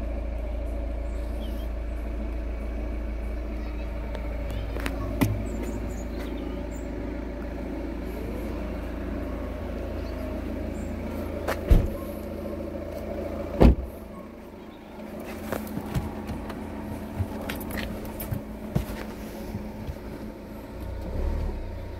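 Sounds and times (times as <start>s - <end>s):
steady low hum: 0.0s - 21.9s
car doors thumping shut: 5.1s - 5.7s, 11.5s - 12.1s, 13.6s - 14.0s.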